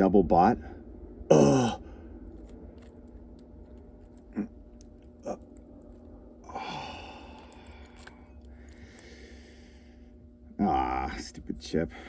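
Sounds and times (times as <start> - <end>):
fingers crumbling dry soil: 2.2 - 9.7.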